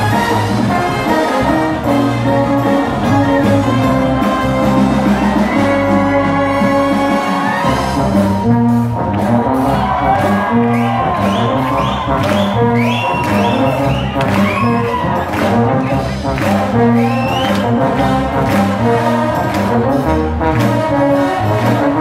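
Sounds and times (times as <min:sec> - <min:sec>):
wind band playing: 0:00.0 - 0:22.0.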